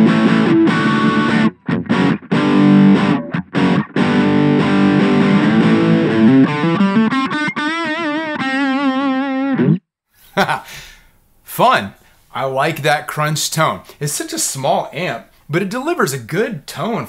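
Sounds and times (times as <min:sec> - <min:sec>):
distorted electric guitar chords: 0:00.0 - 0:09.8.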